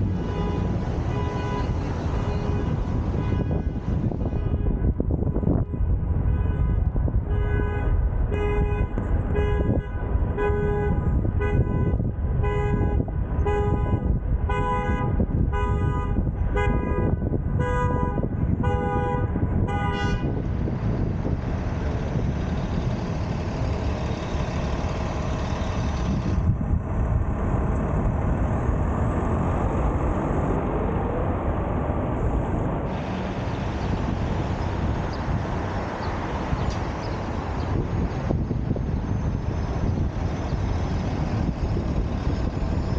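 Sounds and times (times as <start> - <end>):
car road and wind noise: 0.0 - 42.9
car horn tooting: 0.1 - 20.4.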